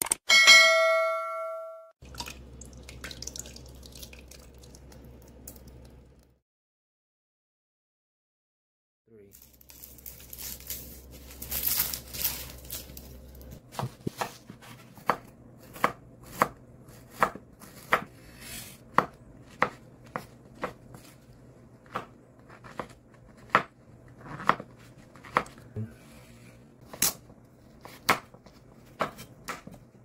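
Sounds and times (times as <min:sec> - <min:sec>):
knife chopping on cutting board: 0:13.7 - 0:21.1, 0:21.8 - 0:25.6, 0:27.8 - 0:29.8.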